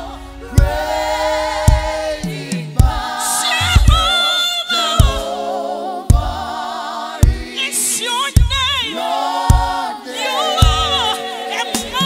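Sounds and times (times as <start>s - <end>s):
band playing: 0.0s - 4.1s
choir singing with vibrato: 0.0s - 12.0s
kick drum: 0.5s - 4.2s, 5.0s - 5.3s, 6.1s - 6.5s, 7.2s - 7.6s, 8.4s - 8.8s, 9.5s - 9.8s, 10.6s - 11.0s.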